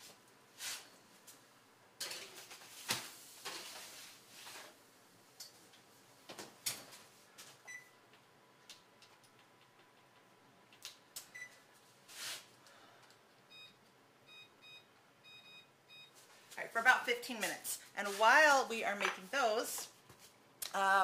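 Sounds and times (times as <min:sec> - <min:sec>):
microwave keypad beeps: 0:07.7 - 0:07.9, 0:11.3 - 0:11.6, 0:13.5 - 0:16.2.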